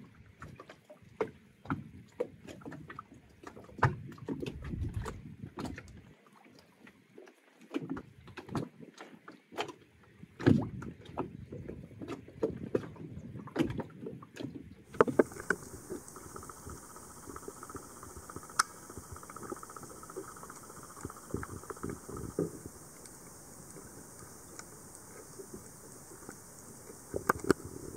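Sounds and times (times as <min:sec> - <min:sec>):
water lapping and sloshing: 0:12.0 - 0:27.9
faint underwater clicks: 0:14.9 - 0:27.9
underwater hiss: 0:14.9 - 0:27.9.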